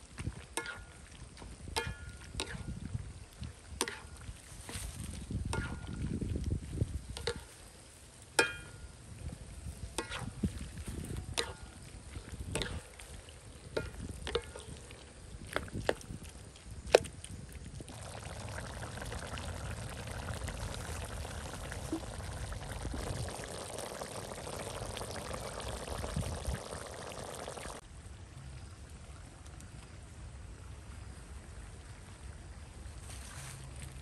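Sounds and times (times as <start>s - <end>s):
liquid pouring into wok: 17.9s - 27.8s.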